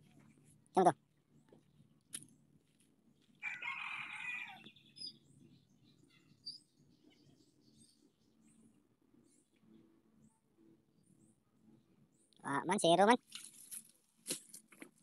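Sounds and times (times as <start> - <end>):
rooster crowing: 3.4 - 4.7
faint high bird chirps: 3.4 - 12.7.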